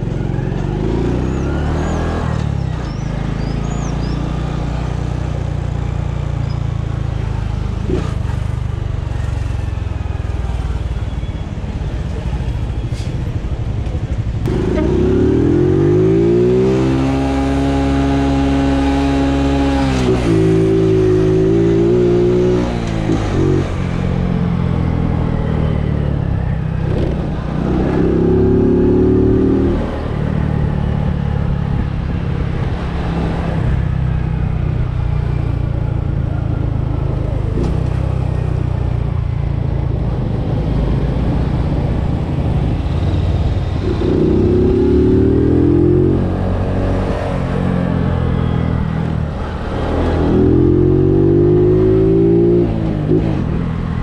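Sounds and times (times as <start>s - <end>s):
motorcycle engine revving: 14.4s - 54.0s.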